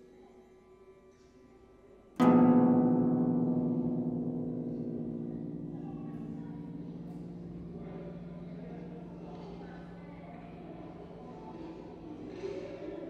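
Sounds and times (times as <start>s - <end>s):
harp chord ringing: 2.2s - 12.5s.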